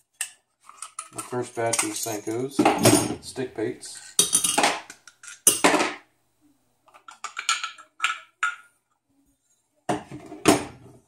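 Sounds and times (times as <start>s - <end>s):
metal pieces clinking and scraping: 0.6s - 2.6s.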